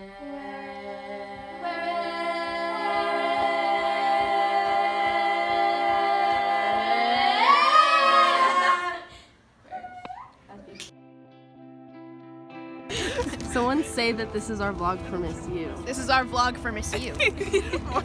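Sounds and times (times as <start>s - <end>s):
girls singing in harmony: 0.0s - 9.3s.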